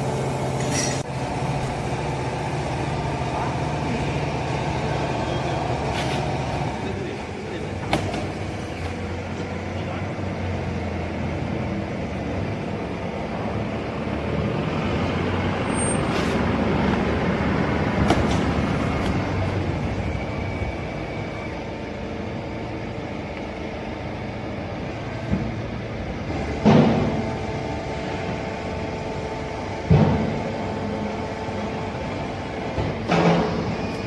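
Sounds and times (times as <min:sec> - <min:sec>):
hydraulic baler humming: 0:00.0 - 0:34.0.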